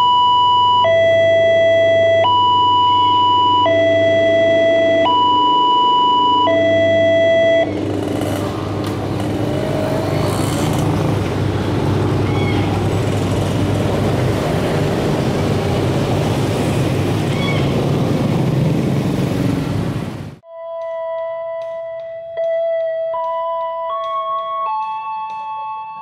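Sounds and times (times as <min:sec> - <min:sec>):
level-crossing alarm tones: 0:00.0 - 0:08.4
motorcycles and cars passing: 0:06.5 - 0:20.4.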